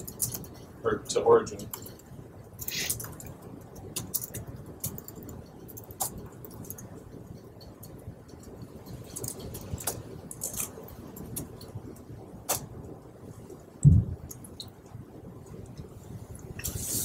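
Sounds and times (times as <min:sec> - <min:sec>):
dull low thump: 0:13.8 - 0:14.2.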